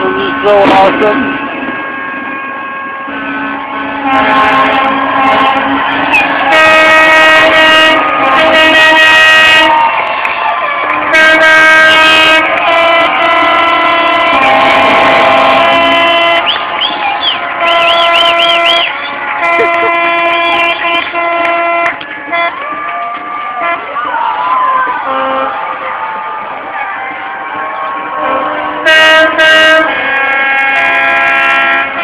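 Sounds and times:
boat horns blasting: 0.0 - 32.0
warbling whistles: 6.0 - 6.5, 16.3 - 19.3.

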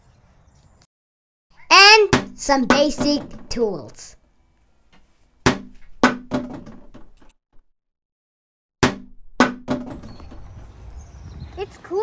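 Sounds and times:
plastic toys knocking: 1.7 - 3.9, 5.5 - 7.3, 8.8 - 10.4.

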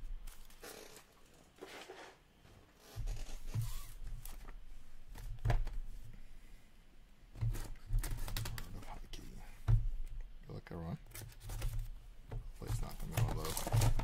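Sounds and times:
plastic wrapping crinkling: 12.6 - 14.0.

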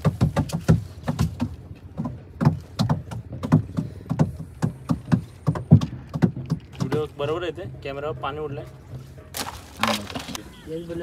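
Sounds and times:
water splashing in strokes: 9.2 - 10.5.

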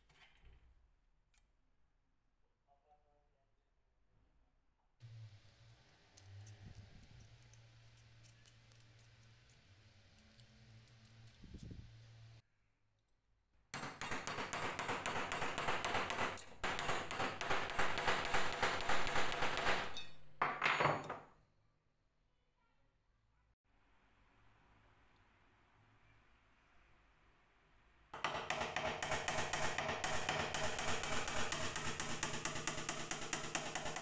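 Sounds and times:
rapid hammer taps: 13.8 - 19.9, 28.2 - 34.0
loud hammer strike: 28.2 - 34.0.

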